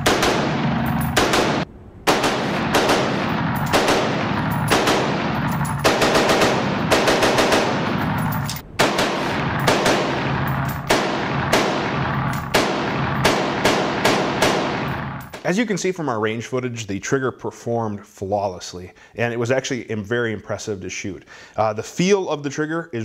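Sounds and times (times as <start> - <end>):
rifle shots echoing indoors: 0.0 - 15.4.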